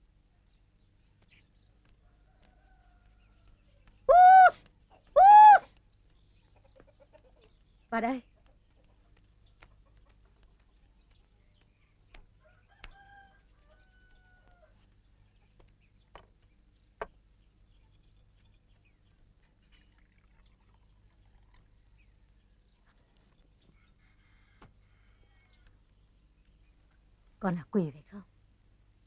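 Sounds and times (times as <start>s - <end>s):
distant rooster crowing: 12.4s - 14.8s, 23.7s - 25.8s.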